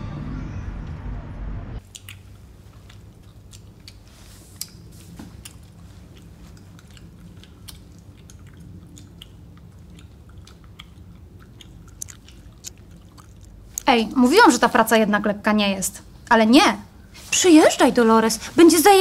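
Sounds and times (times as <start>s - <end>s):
low steady hum: 0.0s - 19.0s
chewing and crunching: 1.8s - 13.9s.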